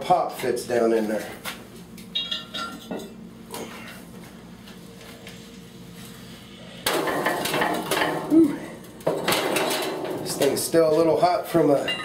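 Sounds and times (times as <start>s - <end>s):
metal pot scraping and clanking: 9.0s - 10.8s.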